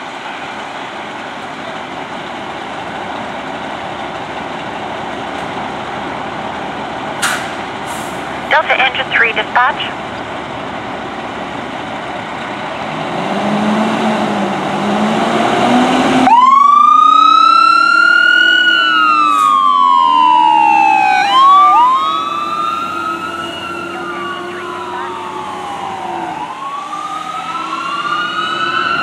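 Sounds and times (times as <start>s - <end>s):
fire engine revving: 0.0s - 29.0s
siren wailing: 16.2s - 29.0s.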